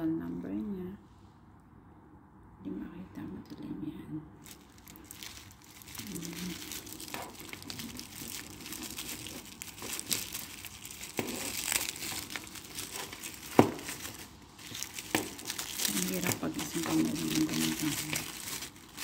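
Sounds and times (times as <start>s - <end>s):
bubble wrap crinkling: 4.4s - 19.0s.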